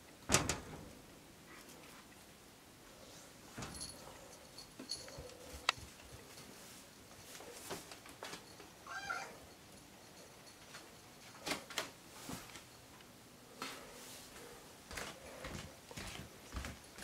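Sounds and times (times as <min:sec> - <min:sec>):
cat meowing: 0:08.8 - 0:09.4.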